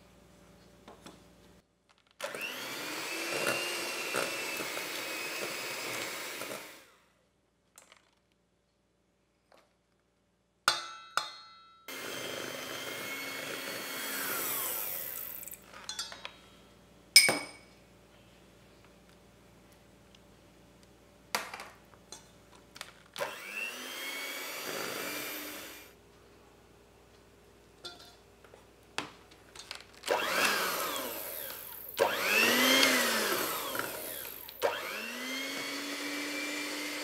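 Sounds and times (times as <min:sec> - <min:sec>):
electric hand mixer whining: 0:02.2 - 0:07.0, 0:11.9 - 0:15.6, 0:23.2 - 0:25.9, 0:30.1 - 0:37.0.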